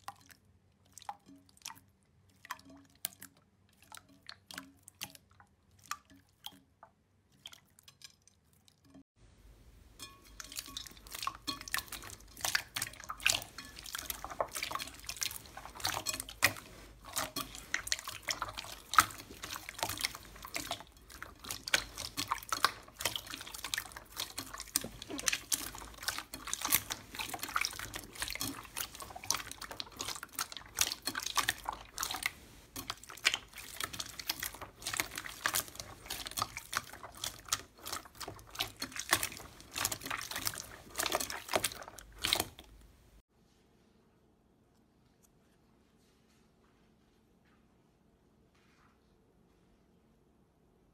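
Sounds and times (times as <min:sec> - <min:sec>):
wet slime squelching: 0:00.0 - 0:09.0, 0:10.0 - 0:43.2.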